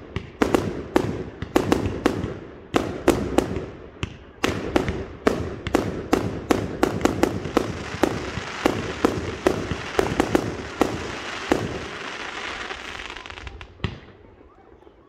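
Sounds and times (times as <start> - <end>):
firework bangs: 0.0 - 14.2
firework crackle: 4.5 - 14.0.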